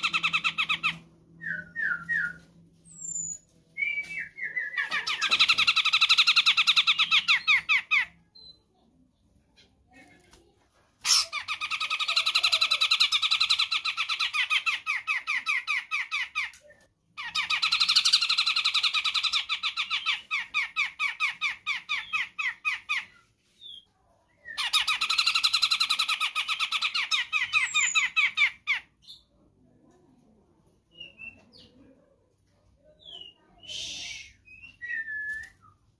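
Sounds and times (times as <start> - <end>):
bird chattering calls: 4.8 - 8.2.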